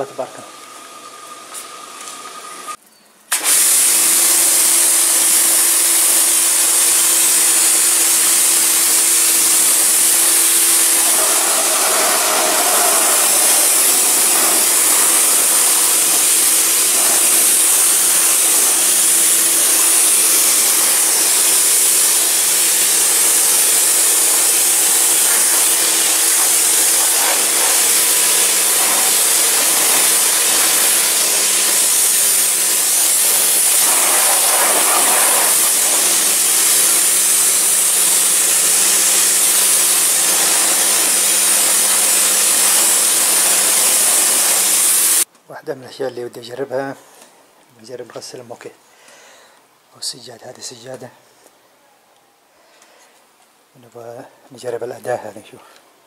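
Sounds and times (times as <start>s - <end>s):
pressure washer water jet hissing: 0.0s - 45.3s
pump motor humming: 3.3s - 45.2s.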